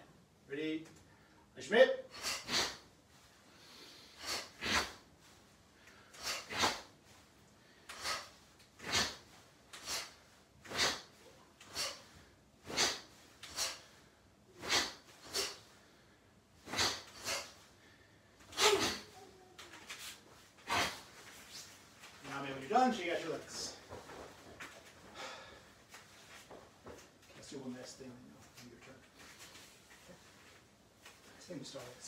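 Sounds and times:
sharp exhalations with punches: 2.1 - 2.9, 3.7 - 5.0, 6.0 - 7.0, 7.8 - 14.0, 14.6 - 15.7, 16.6 - 17.6, 18.5 - 19.2, 20.6 - 21.7.

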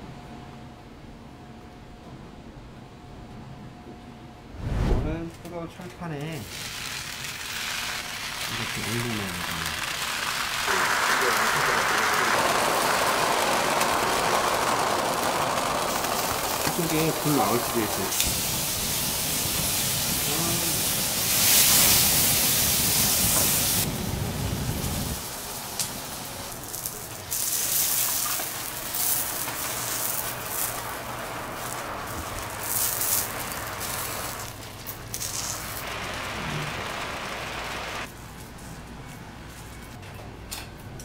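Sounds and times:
flames rushing: 4.5 - 5.3, 6.4 - 38.1
food sizzling on griddle: 6.4 - 38.1.

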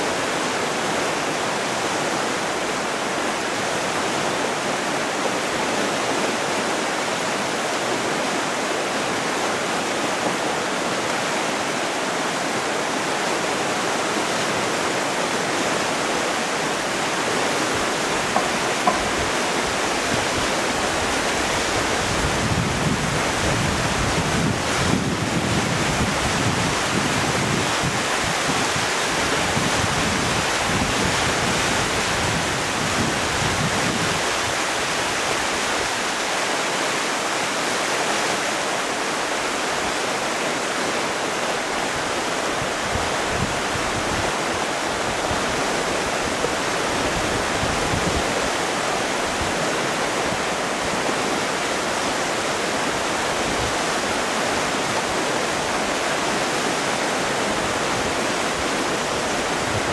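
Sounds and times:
river rushing over rapids: 0.0 - 59.9
wind buffeting microphone: 17.5 - 34.6, 42.1 - 59.9.

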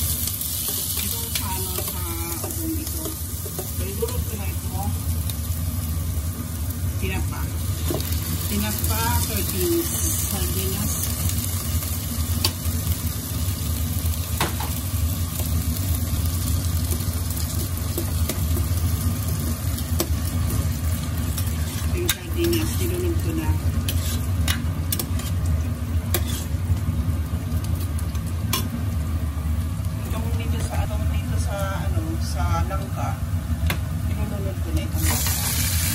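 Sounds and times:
food sizzling: 0.0 - 35.9
steady low hum: 0.0 - 35.9
ladle scraping in pot: 21.4 - 22.9, 23.8 - 25.4, 26.1 - 26.6.

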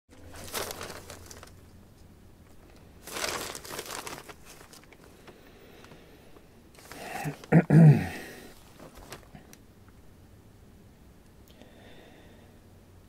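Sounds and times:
rustling crinkling noise: 0.1 - 7.6, 8.4 - 10.0.

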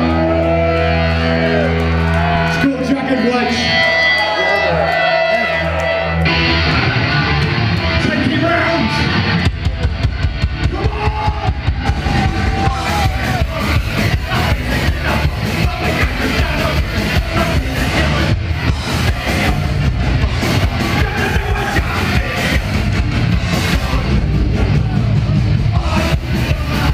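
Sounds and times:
live rock band: 0.0 - 26.9
fast drum beat: 9.4 - 26.9.

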